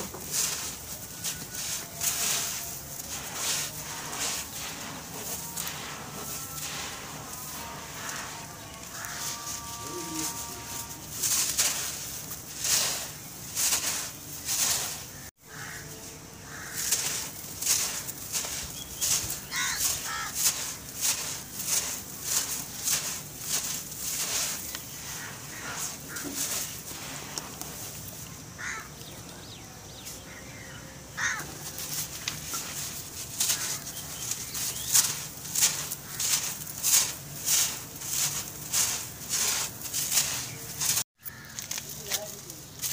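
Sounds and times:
sand grains pouring: 0:00.0 - 0:15.8, 0:16.5 - 0:28.7, 0:31.2 - 0:42.9
dry sand crunching by hand: 0:00.0 - 0:30.5, 0:31.2 - 0:42.9.

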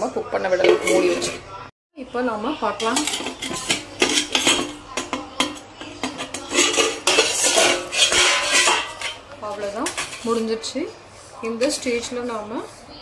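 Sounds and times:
lid and ladle clanking on pot: 0:00.6 - 0:01.4, 0:02.8 - 0:10.4.

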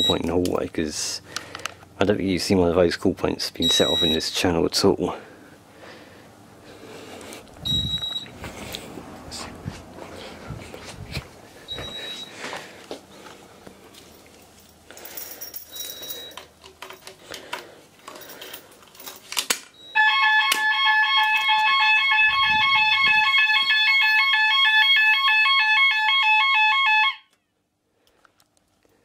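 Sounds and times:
two-tone fire alarm: 0:00.0 - 0:00.2, 0:03.6 - 0:04.2, 0:07.6 - 0:08.3, 0:11.7 - 0:12.3, 0:19.8 - 0:27.5
handling noises: 0:07.1 - 0:24.8
footsteps: 0:08.0 - 0:14.7.

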